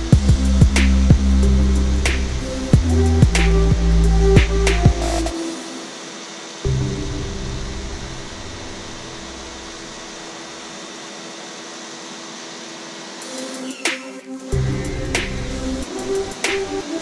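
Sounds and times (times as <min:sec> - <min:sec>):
low rumble: 0:00.0 - 0:05.4, 0:06.7 - 0:10.2.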